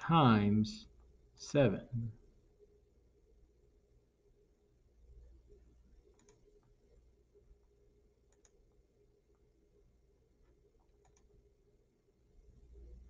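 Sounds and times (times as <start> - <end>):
computer mouse clicks: 6.0 - 6.8, 8.3 - 9.5, 10.8 - 11.4.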